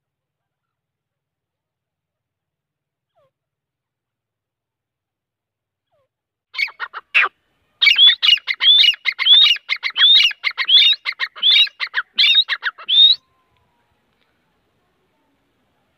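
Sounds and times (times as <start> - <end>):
francolin calling: 6.6 - 13.6.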